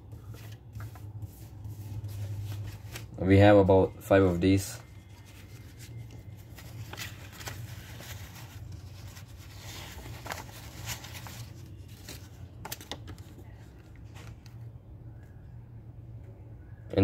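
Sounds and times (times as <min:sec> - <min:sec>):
banknotes rustling: 0:00.0 - 0:14.5.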